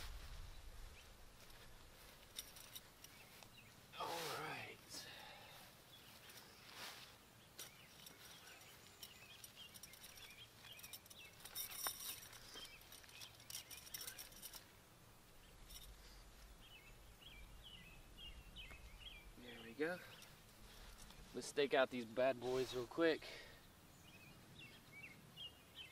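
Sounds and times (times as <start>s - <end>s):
light clicks and rustles: 1.4s - 3.8s, 5.6s - 17.4s, 18.2s - 22.8s.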